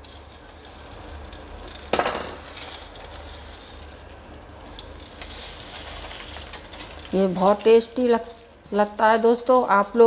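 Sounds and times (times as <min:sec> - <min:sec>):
plate and falling pieces clatter: 0:01.9 - 0:02.4.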